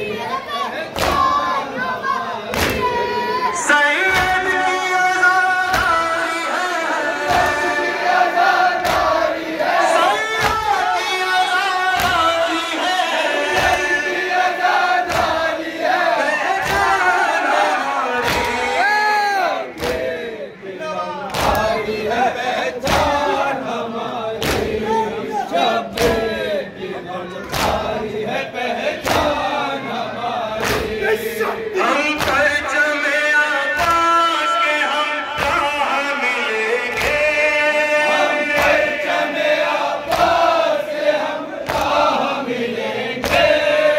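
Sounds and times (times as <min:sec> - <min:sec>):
crowd chanting over loudspeakers: 0:00.0 - 0:43.9
man reciting into a microphone: 0:03.3 - 0:08.1, 0:09.8 - 0:14.1, 0:19.6 - 0:28.6, 0:29.2 - 0:39.4.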